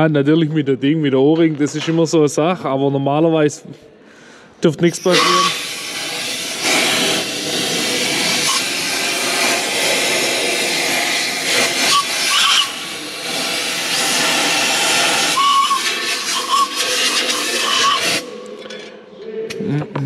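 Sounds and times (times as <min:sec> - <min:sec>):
compressed air blow gun hissing: 0:05.0 - 0:18.2.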